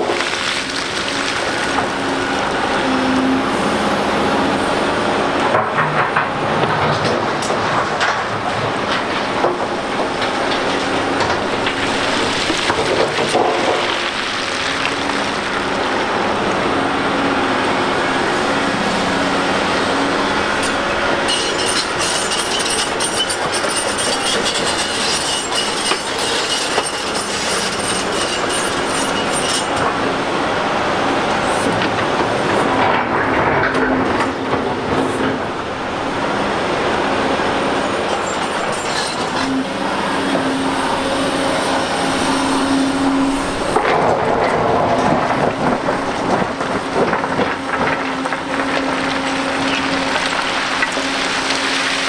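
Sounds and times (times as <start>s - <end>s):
heavy diesel engines running: 0.0s - 52.0s
metallic clanking and squealing: 20.6s - 29.9s, 38.0s - 39.6s.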